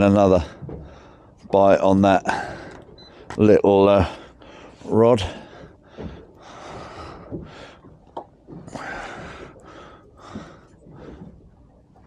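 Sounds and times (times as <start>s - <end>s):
breathy puffs close to microphone: 4.0s - 7.9s, 8.7s - 11.4s.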